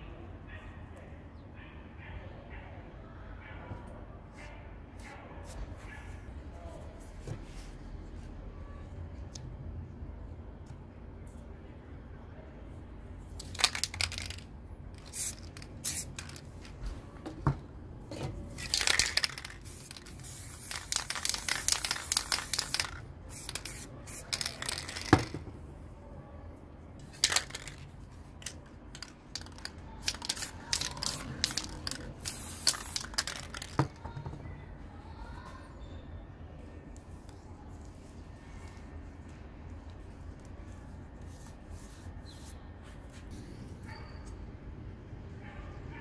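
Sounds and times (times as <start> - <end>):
spray paint can hissing: 13.4 - 14.4, 15.0 - 16.6, 18.6 - 25.4, 27.1 - 27.8, 28.9 - 33.9.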